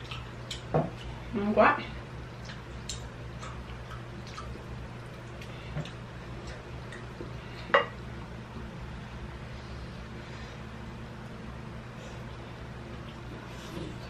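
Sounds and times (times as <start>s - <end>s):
steady low hum: 0.0s - 14.0s.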